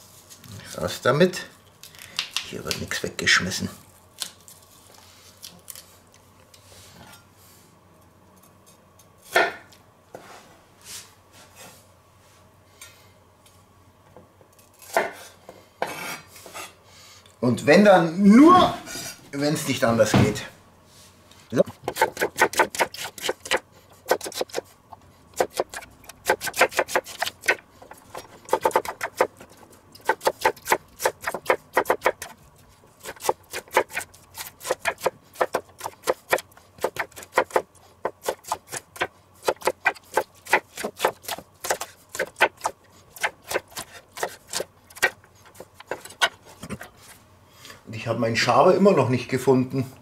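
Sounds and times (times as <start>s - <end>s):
knife chopping on wooden board: 21.8s - 24.7s, 25.4s - 32.4s, 33.0s - 46.4s.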